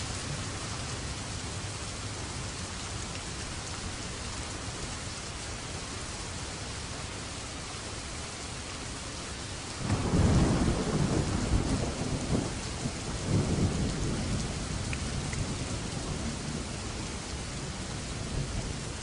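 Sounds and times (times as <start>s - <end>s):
steady rain: 0.0s - 19.0s
thunder rumbling: 9.8s - 19.0s.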